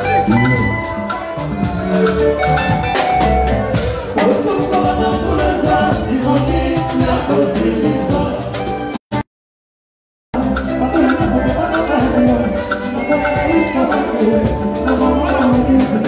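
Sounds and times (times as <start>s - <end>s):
bright melodic instruments: 0.0s - 8.9s
steady drum beat: 0.0s - 9.2s, 10.4s - 16.0s
man singing into microphone: 4.1s - 8.8s, 10.4s - 16.0s.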